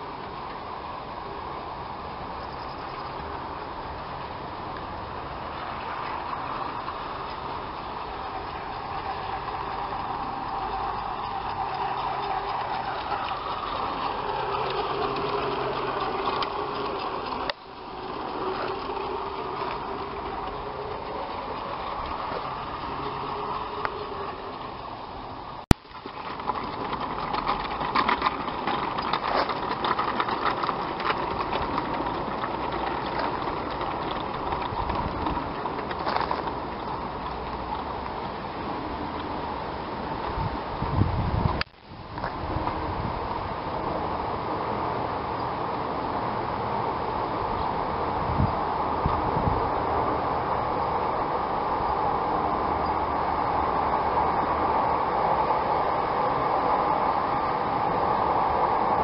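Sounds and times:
wheels rolling on rails: 0:00.0 - 0:59.0
model train motor whine: 0:00.2 - 0:41.6, 0:46.8 - 0:59.0.

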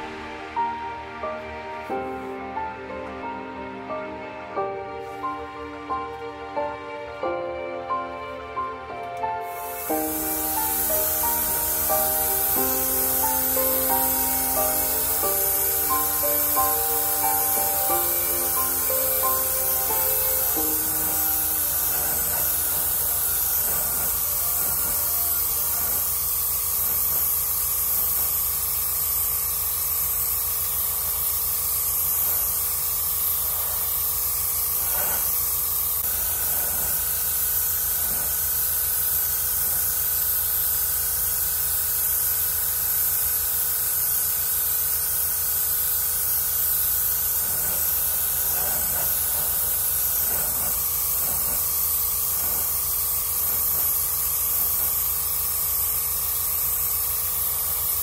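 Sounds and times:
airbrush spraying hiss: 0:09.2 - 0:58.0
steady hum: 0:09.4 - 0:27.3.

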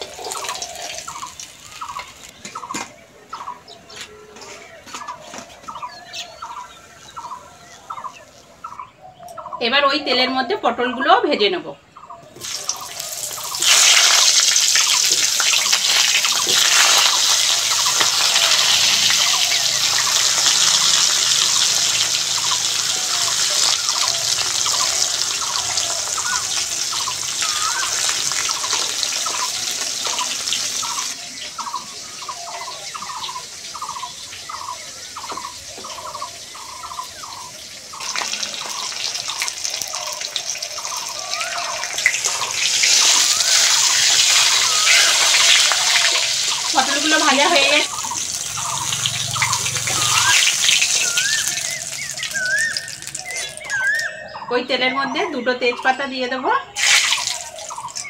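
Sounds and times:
vegetables sizzling in oil: 0:00.0 - 0:02.4, 0:12.4 - 0:54.2, 0:56.8 - 0:58.0.

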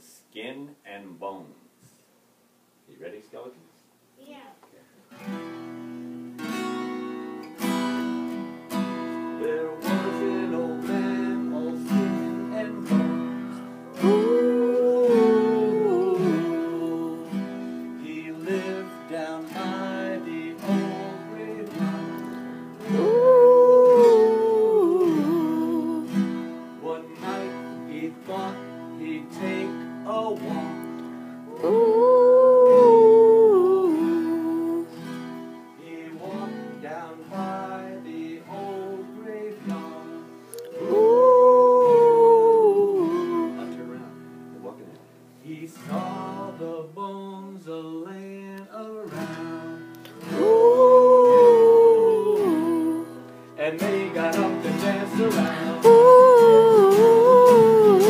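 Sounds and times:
acoustic guitar strumming: 0:05.1 - 0:58.0
children singing: 0:40.6 - 0:43.3, 0:54.0 - 0:58.0.

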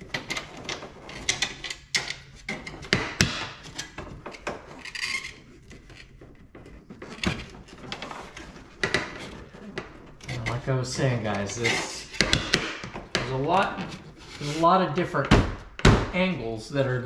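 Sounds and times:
scraping scuff: 0:10.2 - 0:14.7.

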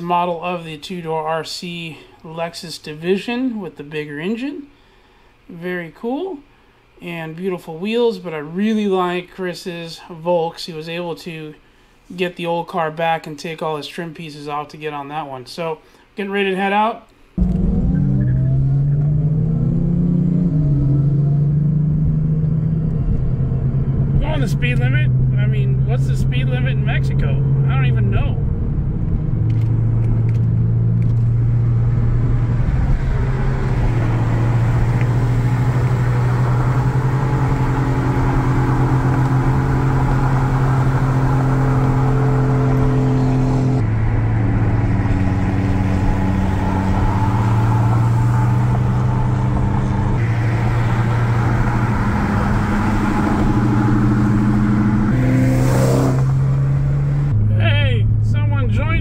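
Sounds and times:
car engine droning: 0:17.4 - 0:59.0
road noise: 0:17.4 - 0:59.0.

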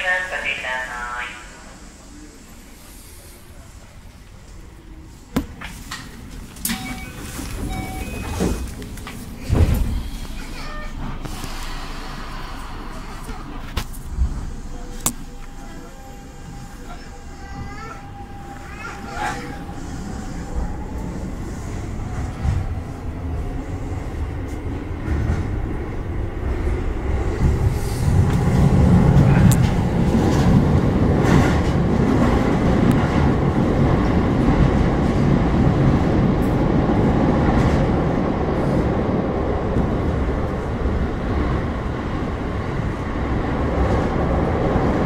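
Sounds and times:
train running rumble: 0:00.0 - 0:45.0
heavy low thump: 0:09.4 - 0:10.3, 0:12.6 - 0:15.6.

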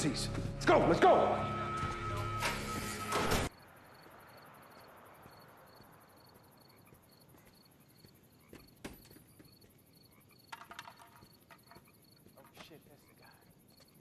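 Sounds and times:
crickets chirping: 0:03.5 - 0:14.0
footsteps on pavement: 0:06.7 - 0:10.0.

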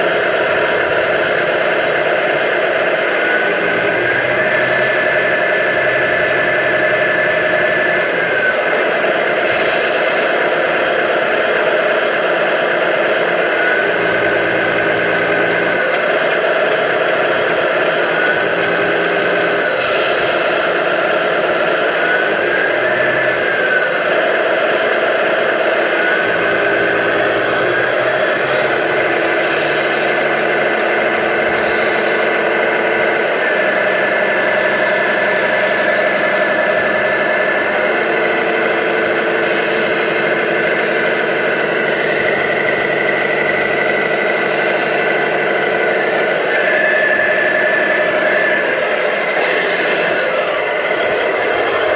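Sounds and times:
diesel engine running: 0:00.0 - 0:51.9.

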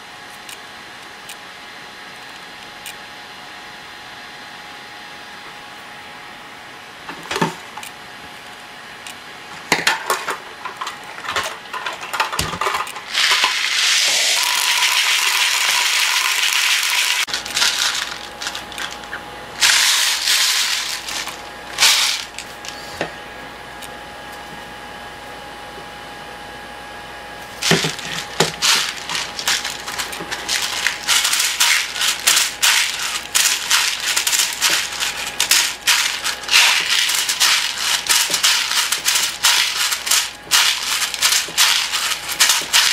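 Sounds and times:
pellets rattling in bottle: 0:11.4 - 0:22.8, 0:27.6 - 0:42.9
pellets pouring into plastic bottle: 0:13.1 - 0:22.5, 0:27.6 - 0:42.9.

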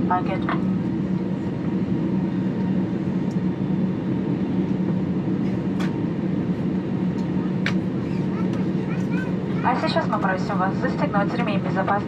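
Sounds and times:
airplane cabin drone: 0:00.0 - 0:12.0.

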